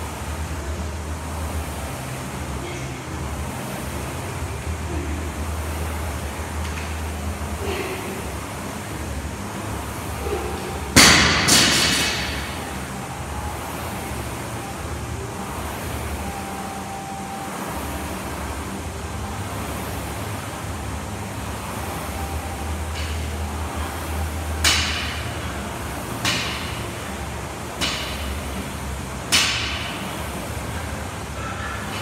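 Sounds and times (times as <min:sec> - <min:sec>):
steady low hum: 0:00.0 - 0:32.0
barbell striking rubber floor: 0:29.3 - 0:30.0.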